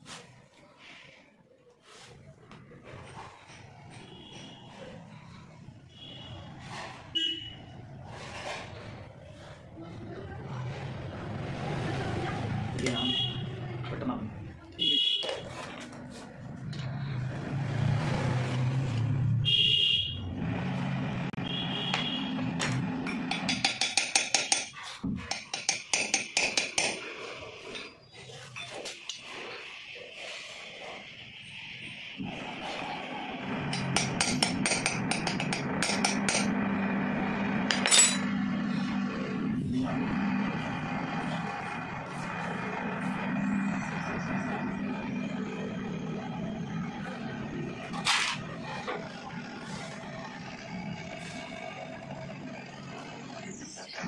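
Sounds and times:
vehicle engine rumble: 15.4 - 23.5, 32.0 - 54.0
hammer tapping steel rod: 23.1 - 27.0, 33.7 - 36.6.

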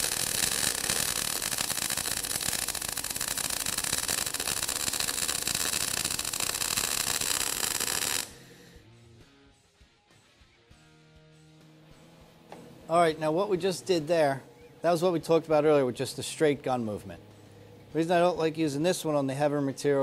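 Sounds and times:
welding arc crackling: 0.0 - 8.6.

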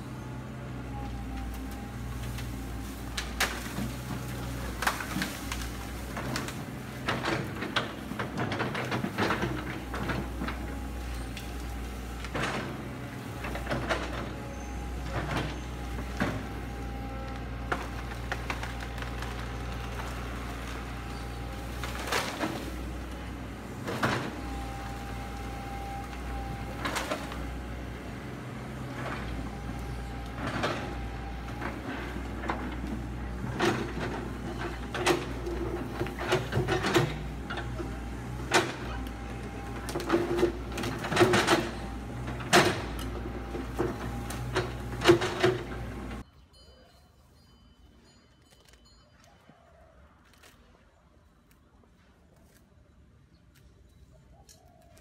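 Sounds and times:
excavator diesel engine running: 0.0 - 46.3
bucket cracking bamboo and brush: 1.4 - 14.1, 15.3 - 23.2, 50.2 - 52.7, 54.4 - 55.0.

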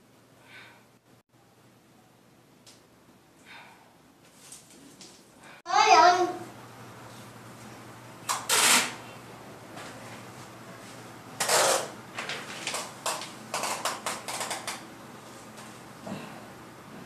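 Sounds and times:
adhesive tape ripping: 8.3 - 9.0, 11.4 - 11.9.

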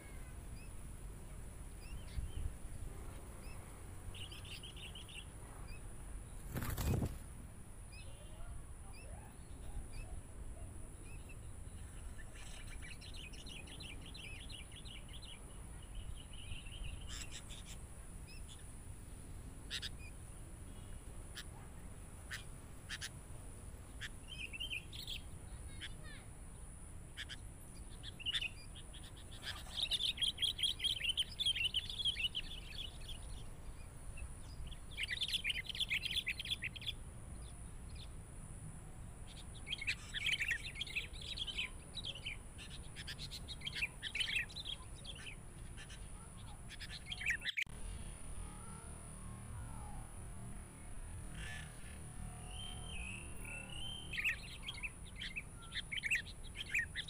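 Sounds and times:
bulbul calls: 7.9 - 18.6, 19.7 - 23.2, 27.2 - 38.0, 39.3 - 48.9, 51.1 - 57.0
fast chattering birdsong: 7.9 - 18.7, 22.2 - 23.2, 27.1 - 37.0, 39.3 - 48.9, 51.2 - 57.0.

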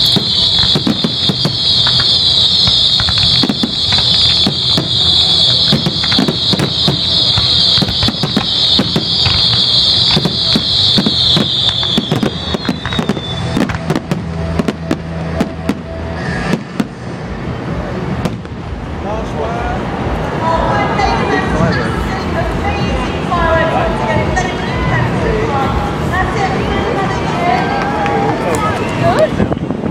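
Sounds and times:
high-pitched firework whistling: 0.0 - 17.2
firework bangs: 0.0 - 19.0.

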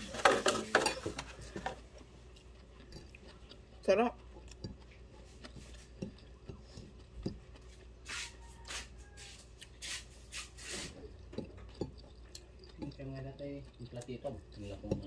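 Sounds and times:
chewing: 0.8 - 15.0.

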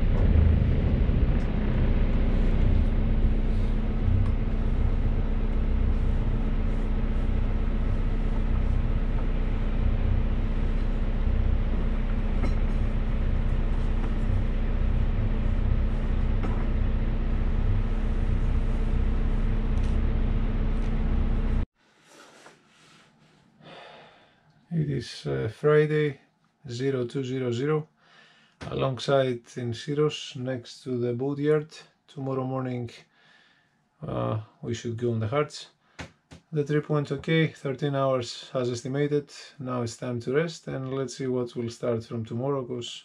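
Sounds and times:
wind rumbling on microphone: 0.0 - 21.4
boat engine droning: 0.0 - 21.6.

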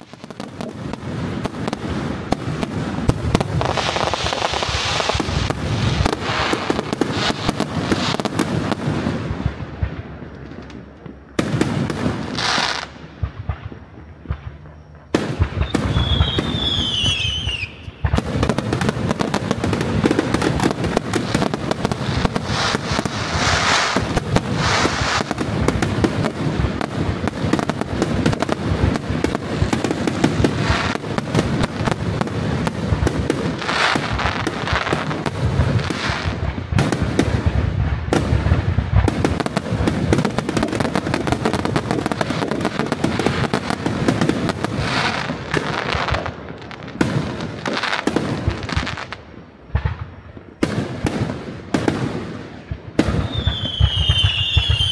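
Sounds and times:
fireworks crackling: 0.0 - 54.9
falling firework whistle: 12.3 - 18.5, 53.0 - 54.9.

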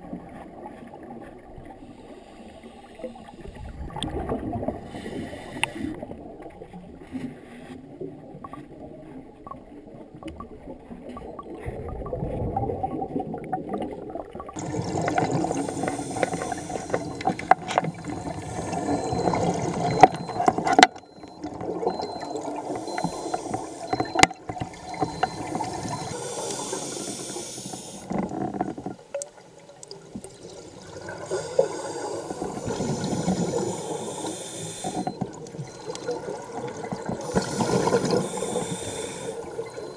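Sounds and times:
muffled underwater exhaled bubbles: 0.0 - 39.9.

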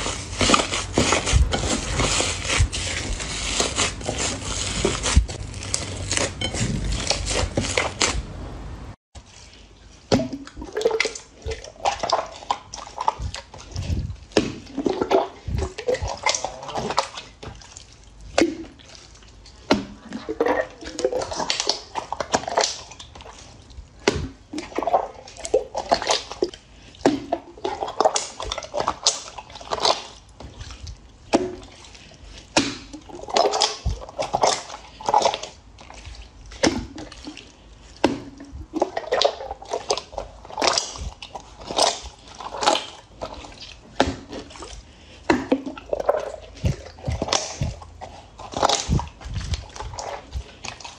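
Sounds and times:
wet squelches of squeezed slime: 0.0 - 8.2, 9.2 - 50.9
slime crackling as kneaded: 0.0 - 8.3, 27.6 - 50.9.

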